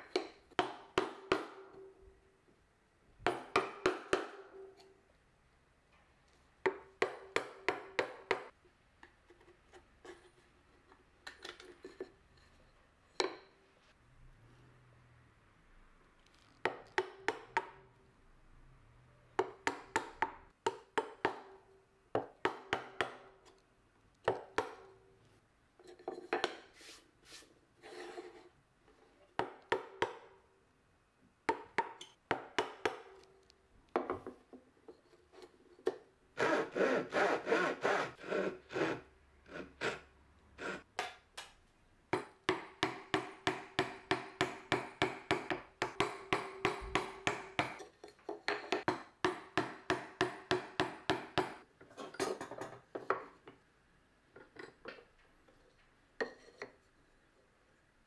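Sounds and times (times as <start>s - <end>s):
chisel cutting into wood: 36.4s - 40.0s.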